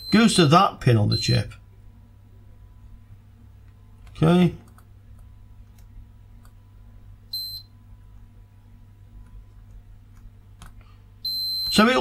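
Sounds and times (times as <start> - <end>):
short high multimeter beep: 0.0 - 0.4, 7.3 - 7.7, 11.2 - 11.9
faint steady hum: 0.0 - 12.0.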